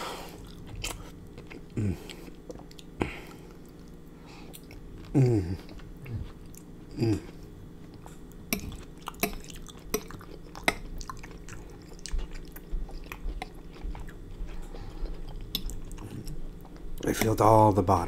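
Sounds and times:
close chewing: 0.4s - 17.3s
hummed moan: 1.7s - 2.3s, 5.0s - 7.5s.

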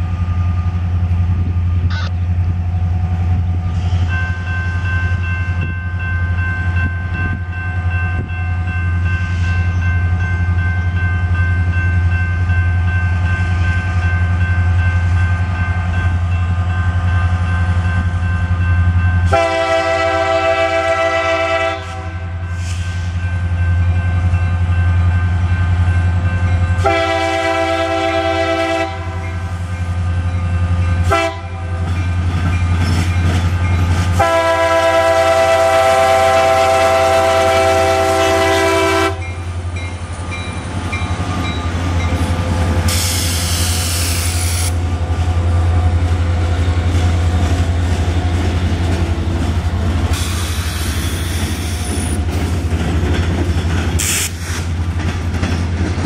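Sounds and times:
locomotive air horn: 19.3s - 23.1s, 26.8s - 29.5s, 31.0s - 31.9s, 34.2s - 39.3s.

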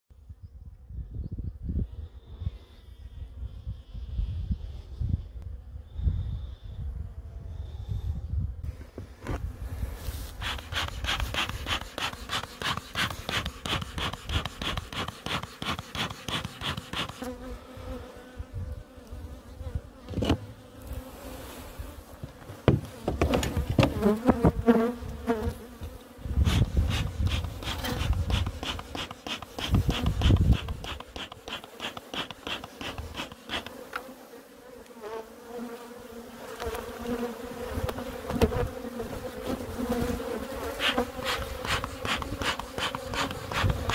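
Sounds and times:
knocks and scrapes of hive parts: 10.3s - 17.4s, 20.0s - 20.5s, 22.2s - 25.5s, 26.4s - 34.1s, 36.5s - 38.8s, 39.5s - 43.9s
bees buzzing: 10.3s - 43.9s.

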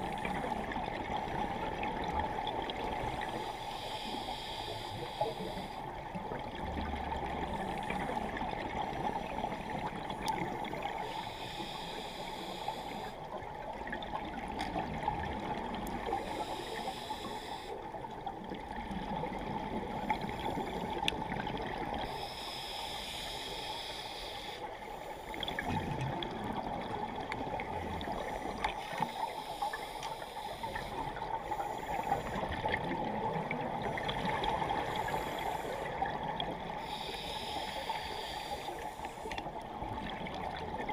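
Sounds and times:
underwater water noise: 0.0s - 40.9s
faint clicks: 28.6s - 29.1s, 29.7s - 30.2s, 38.9s - 39.5s.

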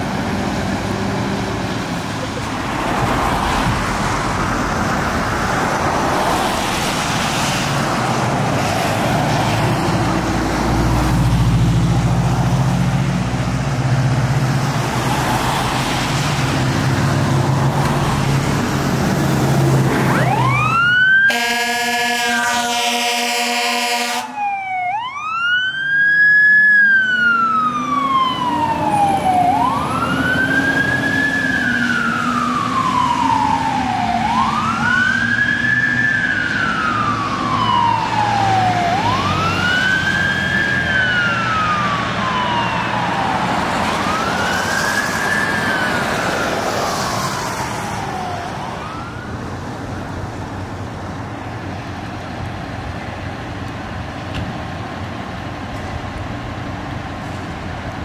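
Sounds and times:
fire engine siren wailing: 0.0s - 54.2s
street traffic: 0.0s - 58.0s.

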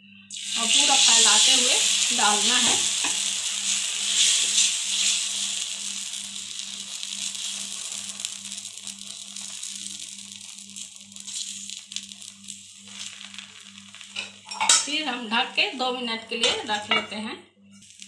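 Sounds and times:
batter sizzling on a griddle: 0.3s - 16.0s, 17.7s - 18.0s.

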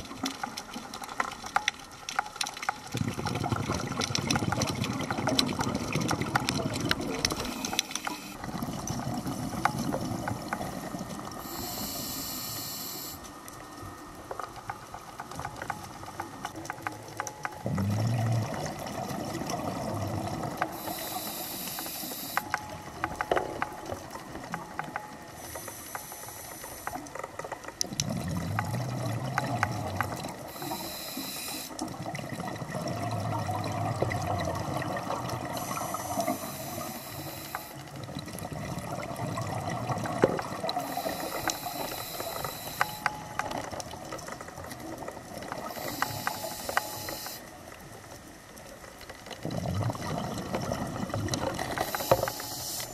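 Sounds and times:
bubbling exhalations: 2.9s - 11.6s, 17.6s - 22.4s, 27.9s - 30.5s, 49.4s - 52.1s
regulator inhalation hiss: 11.4s - 13.3s, 20.7s - 22.5s, 25.4s - 27.0s, 30.5s - 31.8s, 35.6s - 37.8s, 40.8s - 43.0s, 45.6s - 47.5s, 51.8s - 52.9s.

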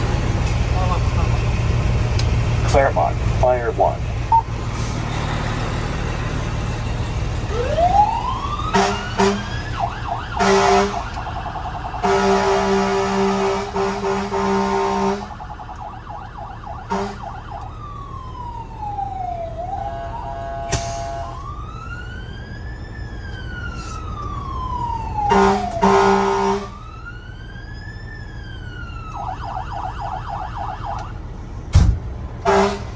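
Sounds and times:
electronic siren yelp and wail: 7.5s - 13.8s, 14.5s - 31.2s
low air horn blasts: 8.7s - 9.5s, 10.4s - 11.2s, 12.0s - 15.4s, 16.8s - 17.3s, 19.8s - 21.4s, 25.2s - 26.7s, 32.4s - 32.9s.

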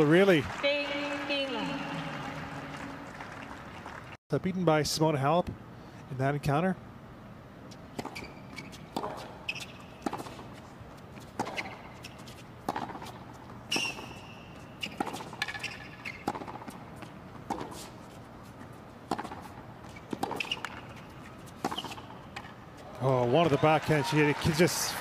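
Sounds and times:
racket striking tennis ball: 7.9s - 10.6s, 11.2s - 18.0s, 19.0s - 22.6s
shoe squeaks on court: 8.0s - 10.5s, 11.4s - 12.5s, 13.7s - 16.6s, 19.8s - 22.5s.

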